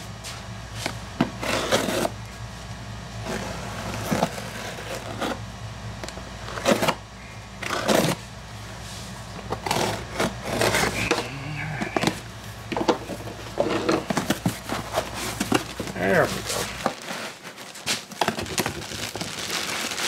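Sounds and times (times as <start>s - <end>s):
steady low hum: 0.0s - 20.0s
knife cutting cardboard box: 1.3s - 2.2s, 6.5s - 7.0s, 7.6s - 8.2s, 9.5s - 11.3s, 14.0s - 19.0s
cardboard scraping rips: 1.4s - 2.2s, 14.2s - 20.0s.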